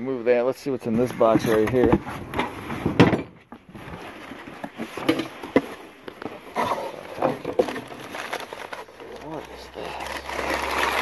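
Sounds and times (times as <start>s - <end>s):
newspaper rustling: 0.9s - 2.9s, 3.6s - 11.0s
cardboard box opening: 3.7s - 11.0s.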